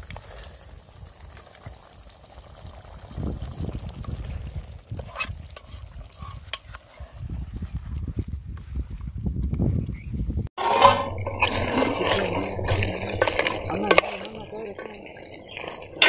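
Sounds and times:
curry simmering in a pot: 0.0s - 6.9s, 11.1s - 16.0s
low rumble: 10.8s - 16.0s.

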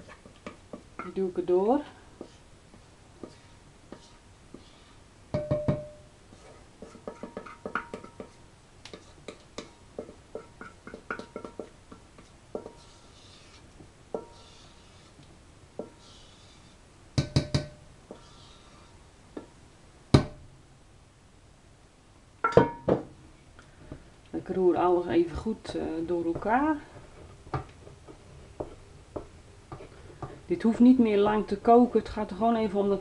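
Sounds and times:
spatula scraping metal bowl: 3.2s - 5.0s, 6.3s - 16.8s, 18.1s - 19.0s
knocks on metal bowl: 5.4s - 6.0s.

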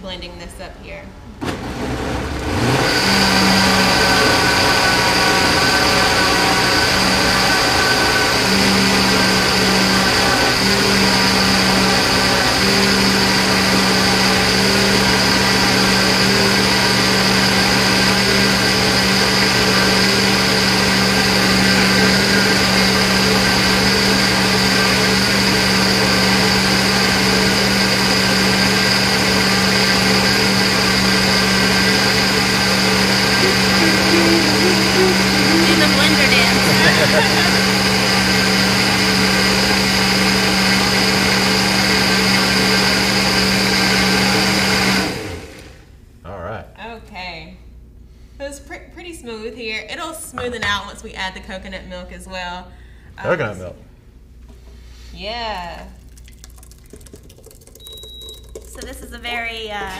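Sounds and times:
blender motor running: 1.4s - 45.8s.

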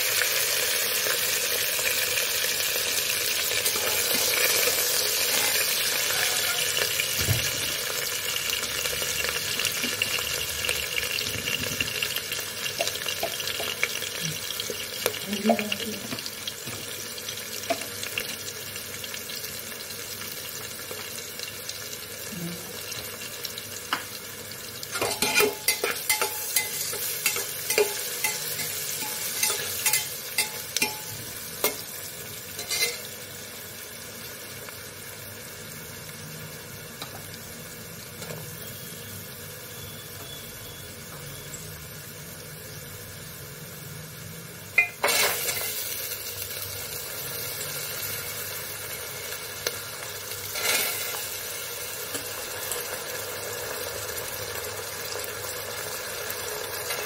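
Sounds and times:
onions sizzling in oil: 0.0s - 57.0s
spoon scraping metal pot: 25.0s - 31.1s, 32.6s - 33.1s, 50.5s - 51.2s.

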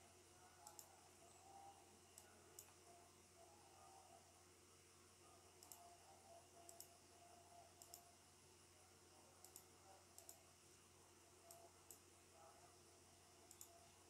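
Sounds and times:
faint room hum: 0.0s - 14.0s
computer mouse button clicking: 7.8s - 8.0s.

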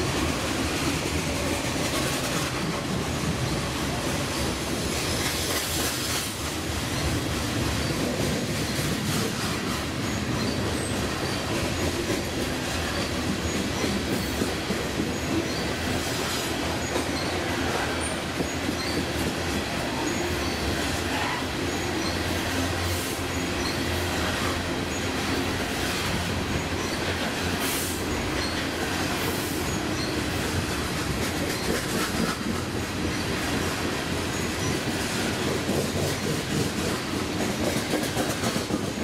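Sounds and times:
train wheels rumbling on track: 0.0s - 39.0s
high wheel squeals: 28.0s - 30.6s.

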